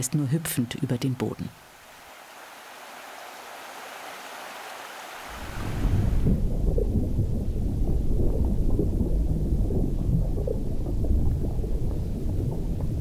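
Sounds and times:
muffled underwater rumble: 0:05.3 - 0:13.0
exhaled air bubbles underwater: 0:05.4 - 0:13.0.

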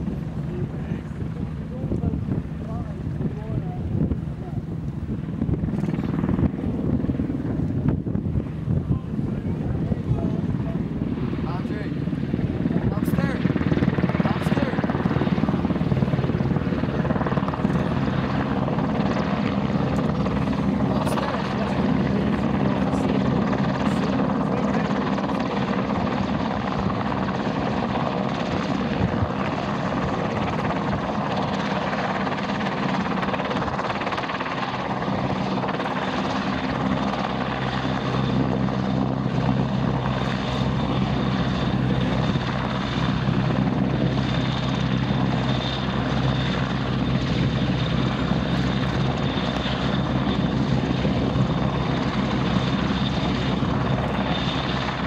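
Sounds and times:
faint high turbine whine: 0:00.0 - 0:55.0
helicopter engines and rotor: 0:00.0 - 0:55.0.

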